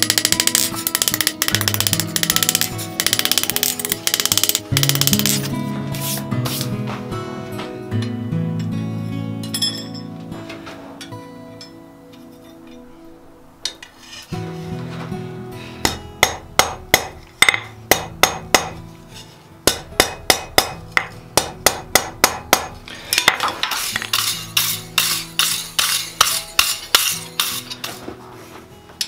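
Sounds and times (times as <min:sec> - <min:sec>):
hammer striking hot iron on anvil: 0:15.8 - 0:18.8, 0:19.6 - 0:28.0.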